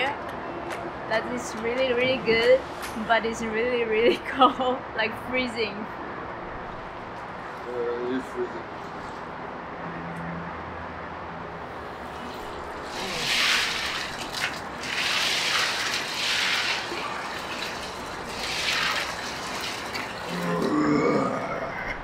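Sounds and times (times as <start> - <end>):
water splashing: 12.1 - 20.8.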